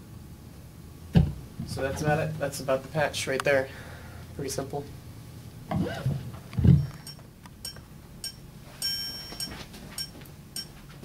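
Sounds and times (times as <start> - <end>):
dull thump: 1.1 - 1.8
bright ringing chime: 6.8 - 10.7.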